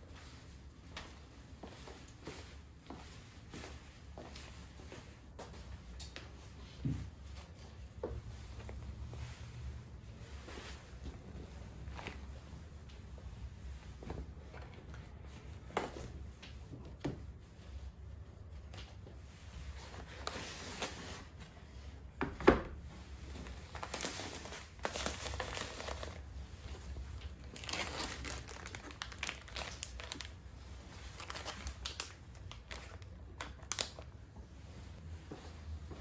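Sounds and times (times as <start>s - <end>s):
packaging crinkling and tearing: 23.5s - 26.2s, 27.2s - 30.4s, 31.0s - 34.1s.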